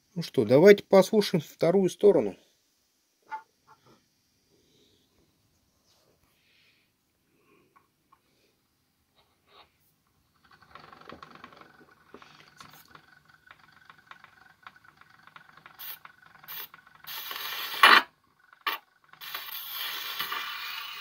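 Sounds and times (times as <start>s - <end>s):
needle scraping record: 10.4s - 13.2s, 15.4s - 21.0s
crackling hiss of record needle: 15.8s - 21.0s.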